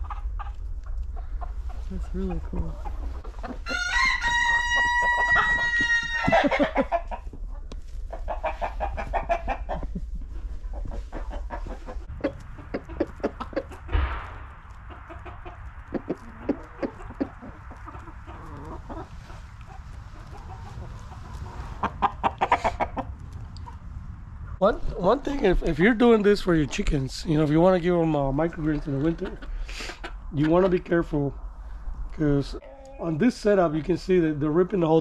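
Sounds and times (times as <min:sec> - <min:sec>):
chickens clucking: 0:00.0 - 0:23.9, 0:25.0 - 0:31.4, 0:32.3 - 0:34.2
rooster crowing: 0:03.6 - 0:06.9.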